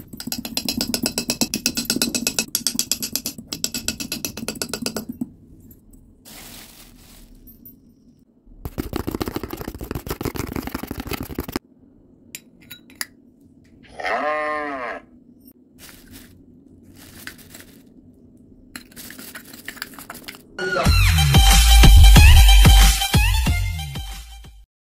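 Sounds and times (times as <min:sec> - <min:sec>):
rustling and crackling: 0:06.2 - 0:07.9, 0:15.7 - 0:20.6
bleat-like call: 0:13.8 - 0:15.1.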